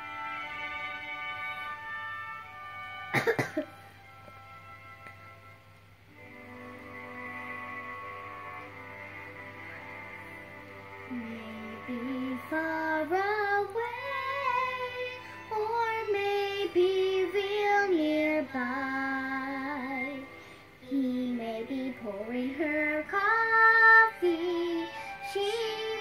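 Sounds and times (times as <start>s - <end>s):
girl singing slow melody: 11.0s - 26.0s.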